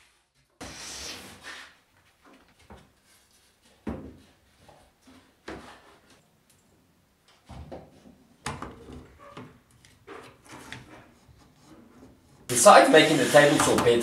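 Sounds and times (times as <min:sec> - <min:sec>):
wooden board scraping: 0:10.1 - 0:14.0.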